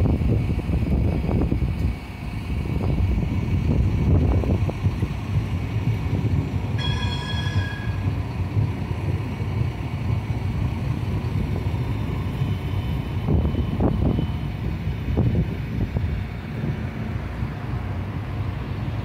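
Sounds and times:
tram rumbling past: 0.0 - 19.0
high ringing tone: 6.8 - 8.4.

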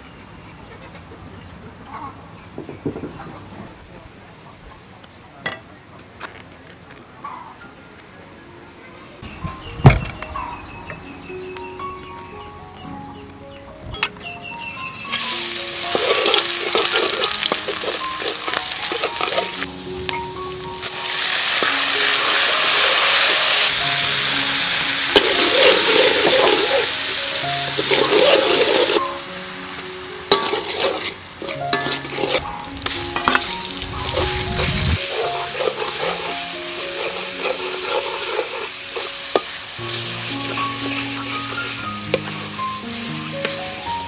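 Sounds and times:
soft background music: 7.2 - 44.0
aromatics sizzling in hot oil: 14.6 - 44.0
metal spatula scraping a wok: 15.5 - 19.6, 24.9 - 29.0, 30.3 - 42.6.

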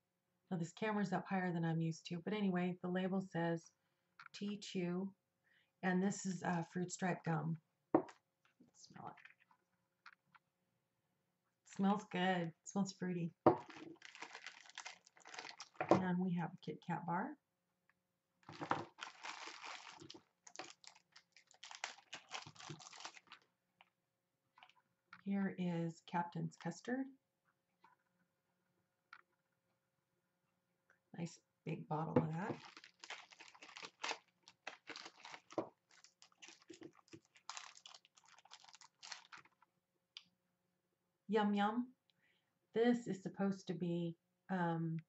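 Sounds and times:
packaging rustling: 13.5 - 16.0, 18.4 - 23.5, 32.5 - 39.6
packaging crackles and clicks: 13.6 - 15.9, 18.4 - 23.9, 32.5 - 39.7.

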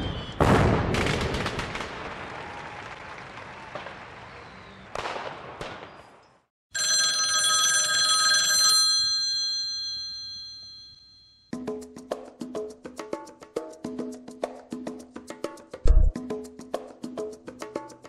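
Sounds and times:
metallic bell-like ring: 9.1 - 11.5.

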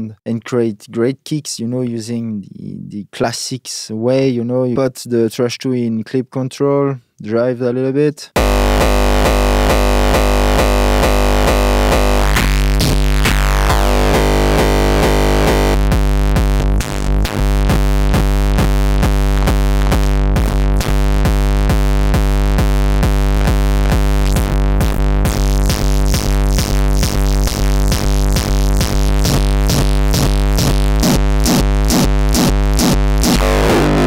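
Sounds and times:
distorted kick drum beat: 8.4 - 34.0.

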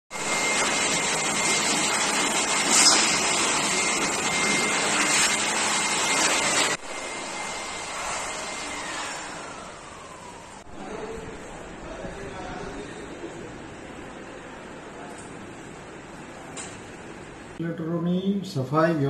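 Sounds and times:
electric air blower whining: 0.2 - 10.7.

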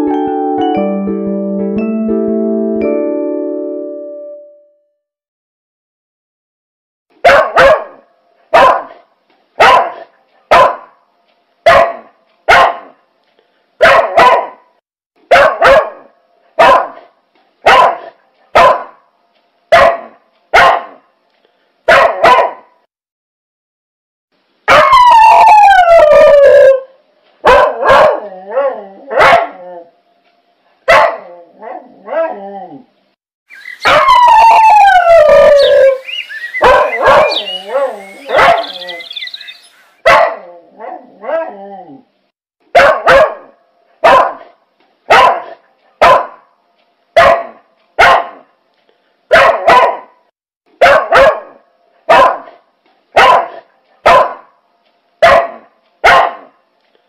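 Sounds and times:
dog barking: 7.2 - 11.0, 11.6 - 13.0, 13.8 - 19.0, 19.7 - 21.1, 21.9 - 22.9, 24.7 - 25.0, 27.4 - 29.6, 30.8 - 32.3, 33.8 - 34.2, 35.6 - 39.4, 40.0 - 41.5, 42.7 - 46.5, 47.2 - 48.5, 49.3 - 54.6, 55.2 - 56.6
dog howling: 24.7 - 26.9, 33.8 - 39.2.

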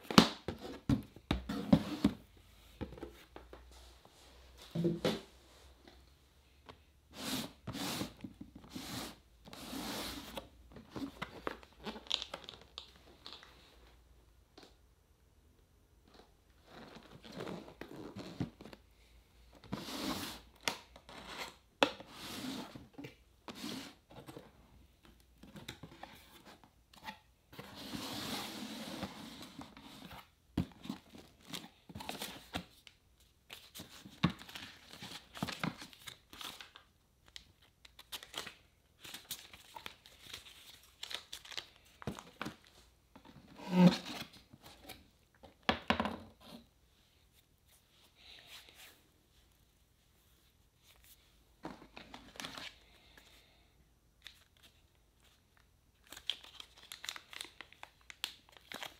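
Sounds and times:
cardboard packaging rustling: 33.5 - 45.0, 56.0 - 58.9.

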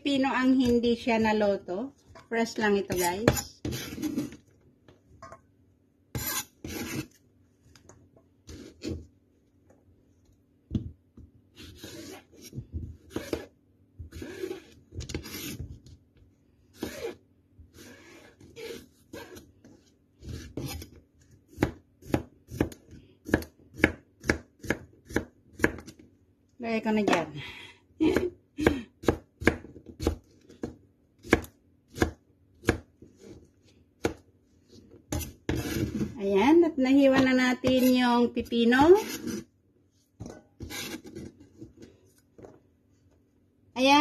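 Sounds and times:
knife scraping: 2.9 - 4.4, 6.1 - 7.2, 11.6 - 13.5, 14.1 - 15.6, 34.7 - 36.2, 38.8 - 39.5, 40.2 - 41.9
knife chopping on cutting board: 21.5 - 25.9.

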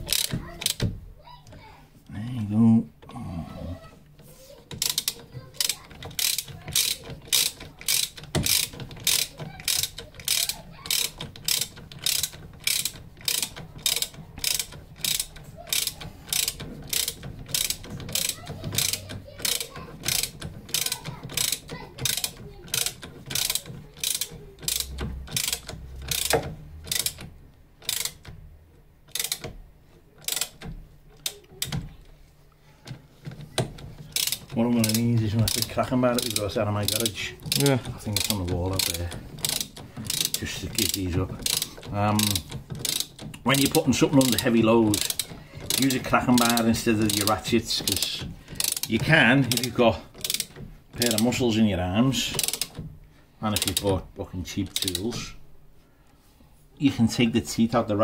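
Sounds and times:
socket ratchet clicking: 0.0 - 0.9, 4.1 - 29.6, 30.2 - 32.0, 32.9 - 55.2.

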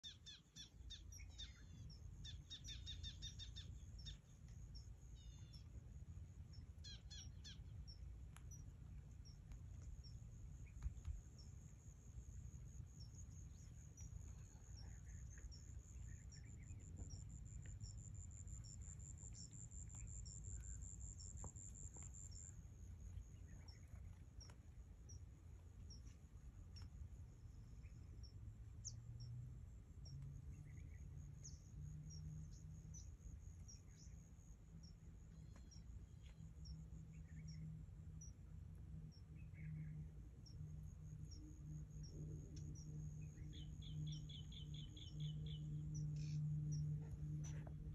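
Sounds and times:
bird chirps: 0.0 - 5.7, 6.5 - 8.6, 42.0 - 47.7
faint low rumble: 0.0 - 47.9.

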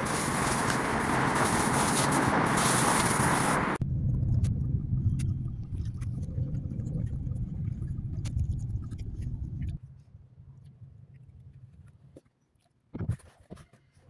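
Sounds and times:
car engine and tyres rumbling: 0.0 - 9.8.

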